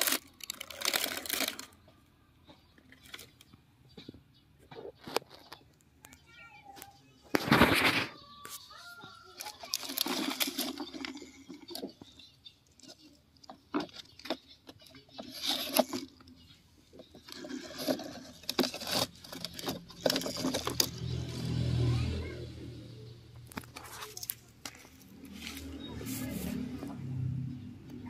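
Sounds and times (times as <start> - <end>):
toy truck wheels scraping on gravel: 0.0 - 1.8, 7.3 - 13.2, 13.8 - 21.9, 23.5 - 26.9.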